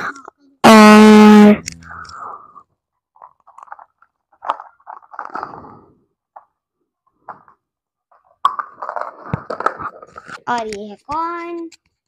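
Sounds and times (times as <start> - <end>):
plastic scraping: 8.1 - 10.8.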